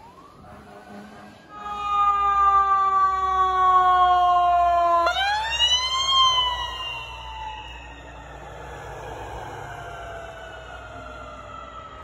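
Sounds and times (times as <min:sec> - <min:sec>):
air horn blasting: 0:00.4 - 0:02.2.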